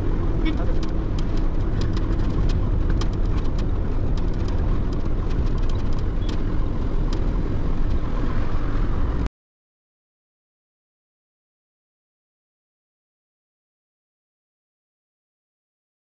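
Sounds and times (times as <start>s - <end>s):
lorry engine and road rumble: 0.0s - 9.3s.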